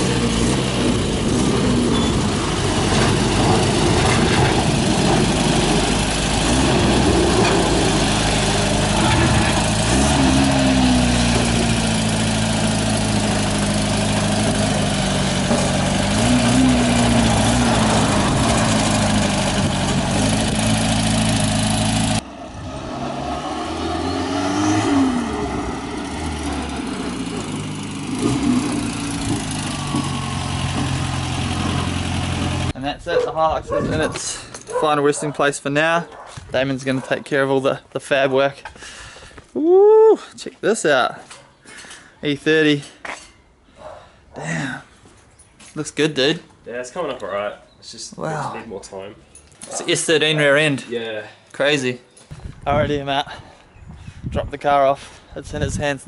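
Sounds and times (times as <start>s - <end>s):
engine running with throttle blips: 0.0s - 32.8s.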